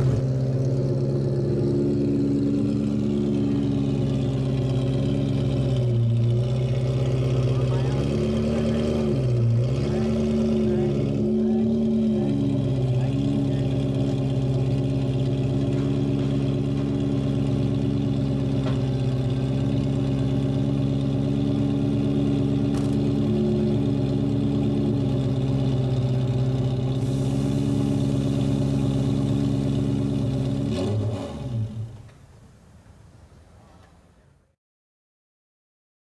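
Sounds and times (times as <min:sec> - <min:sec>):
car engine idling: 0:00.0 - 0:34.3.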